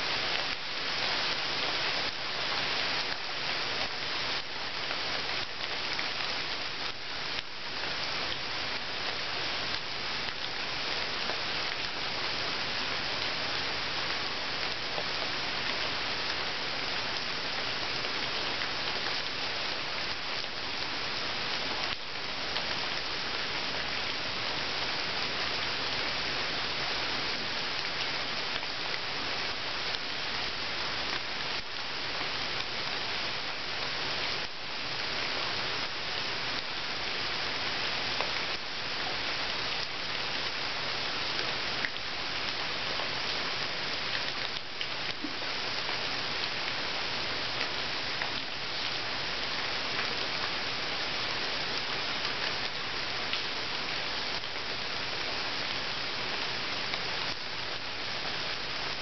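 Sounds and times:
rain falling into water: 0:00.0 - 0:59.0.

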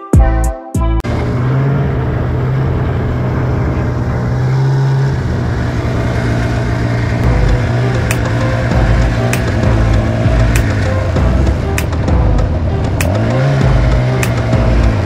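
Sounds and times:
music with a beat: 0:00.0 - 0:01.0, 0:07.2 - 0:15.0
snowmobile engine droning: 0:01.0 - 0:15.0.

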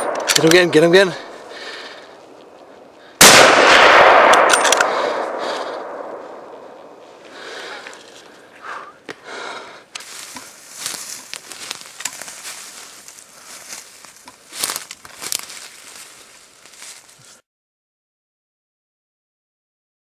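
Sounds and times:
footsteps crunching through dry leaves: 0:06.2 - 0:08.6, 0:09.5 - 0:17.4.

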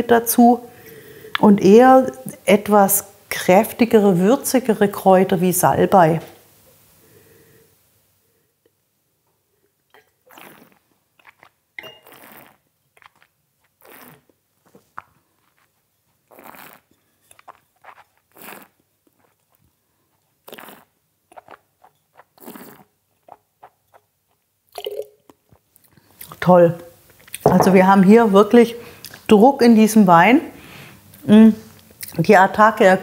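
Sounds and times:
slurping wine: 0:10.0 - 0:26.4
wet mouth clicks: 0:10.3 - 0:26.4.

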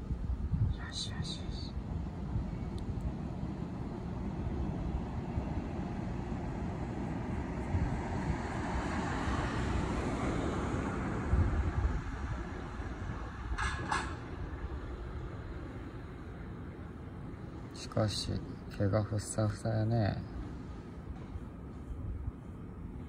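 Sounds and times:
car passing by: 0:03.5 - 0:16.2.

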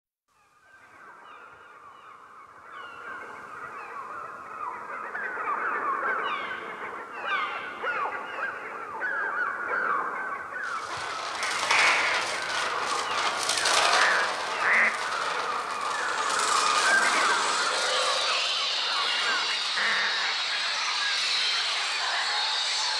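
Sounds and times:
loud rushing hiss: 0:10.7 - 0:22.9
electronic bird cries: 0:17.1 - 0:22.7.

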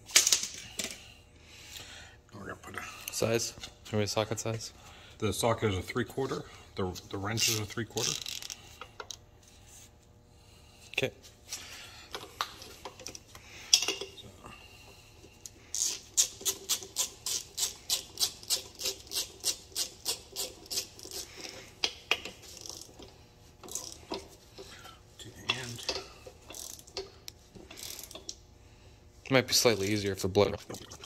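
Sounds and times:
socket ratchet clicking: 0:15.8 - 0:23.0, 0:25.6 - 0:27.1, 0:27.7 - 0:28.4.

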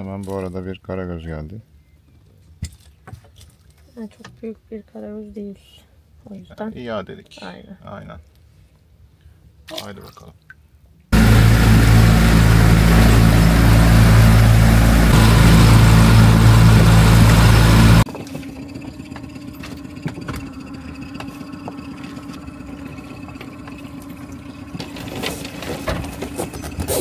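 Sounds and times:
quiet engine hum: 0:11.2 - 0:18.1
boat engine running: 0:11.2 - 0:26.7.

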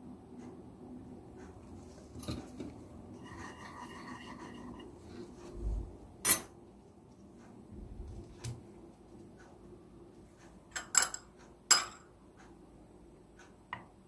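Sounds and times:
rubbing and handling on tray: 0:01.7 - 0:06.0.

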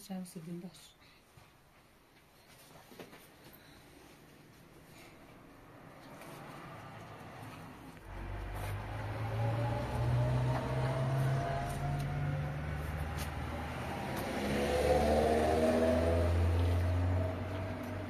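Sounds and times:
vehicle engine running and revving: 0:06.0 - 0:18.0.

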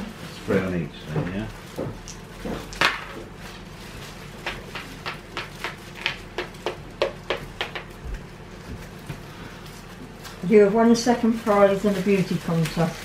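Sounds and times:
game piece tapping on board: 0:04.7 - 0:07.9.

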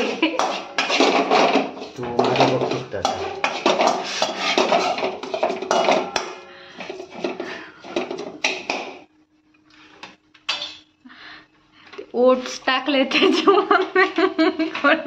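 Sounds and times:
spatula scraping metal pan: 0:00.0 - 0:08.1
faint steady hum: 0:05.4 - 0:15.0.

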